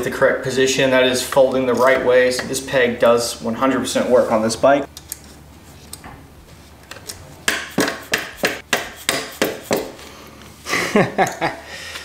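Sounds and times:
sharp metal knocks: 0:07.5 - 0:09.9.

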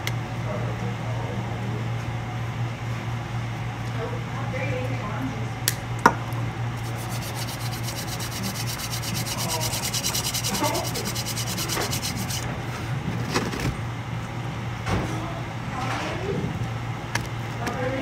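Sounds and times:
steady low hum: 0:00.0 - 0:15.8
hands rubbing together: 0:06.8 - 0:12.4.

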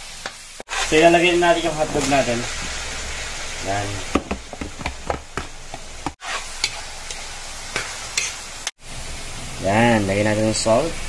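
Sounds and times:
frying sizzle: 0:00.0 - 0:11.0
metal spatula scraping a wok: 0:06.2 - 0:08.7.

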